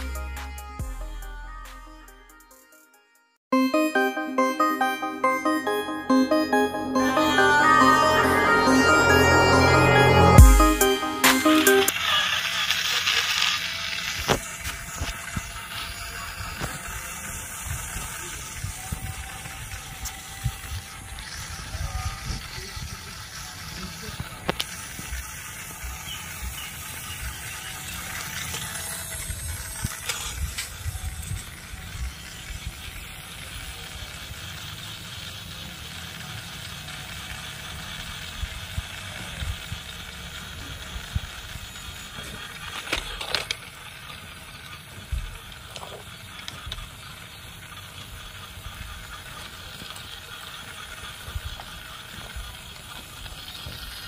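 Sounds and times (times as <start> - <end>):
small mechanism clicking and rattling: 42.2 - 53.6.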